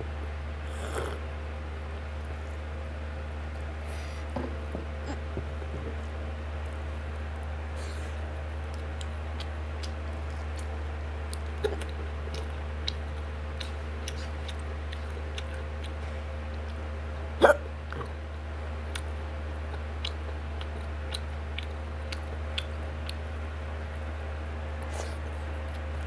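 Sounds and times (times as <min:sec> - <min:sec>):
steady low hum: 0:00.0 - 0:26.0
soft chewing and mouth clicks: 0:05.0 - 0:26.0
sharp throat sound: 0:17.4 - 0:17.7.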